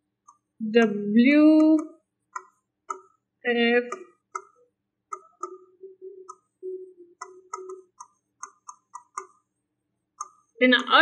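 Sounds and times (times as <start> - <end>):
pen tapping and squeaking on board: 7.2 - 9.5.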